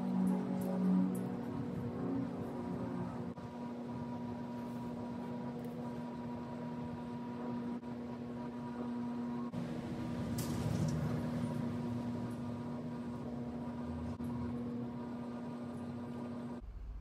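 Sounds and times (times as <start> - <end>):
steady mechanical hum: 0.0 - 17.0.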